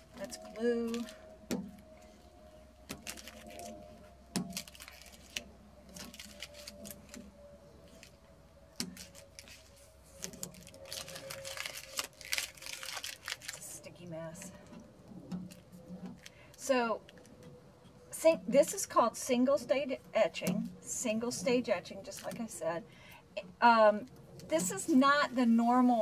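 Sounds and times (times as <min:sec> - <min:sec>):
sticky film peeling crackles: 0:00.0 - 0:18.0, 0:21.8 - 0:22.6.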